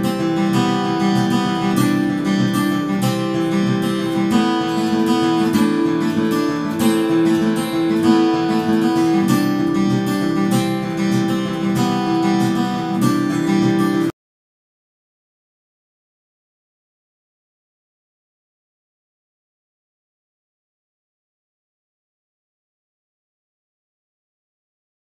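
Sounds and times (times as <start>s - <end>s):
acoustic guitar music: 0.0s - 14.2s.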